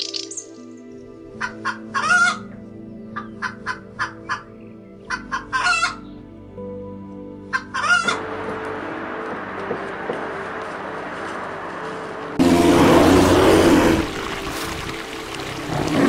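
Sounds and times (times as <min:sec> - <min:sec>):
quiet background music: 0:00.0 - 0:16.0
hen cackling: 0:01.4 - 0:02.5, 0:03.2 - 0:04.5, 0:05.1 - 0:06.0, 0:07.5 - 0:08.2.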